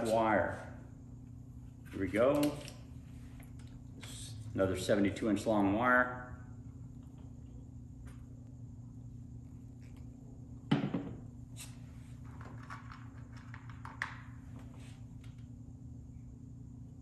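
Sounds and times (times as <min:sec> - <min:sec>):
steady low hum: 0:00.0 - 0:17.0
thunk on workbench: 0:10.7 - 0:11.2.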